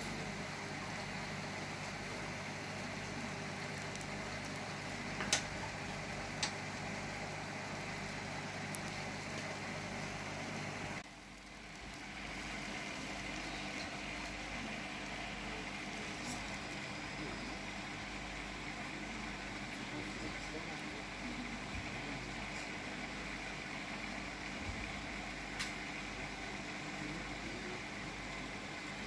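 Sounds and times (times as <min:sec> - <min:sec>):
aquarium air pumps humming: 0:00.0 - 0:29.0
bubbling hiss: 0:00.0 - 0:29.0
sharp clicks: 0:08.1 - 0:09.5.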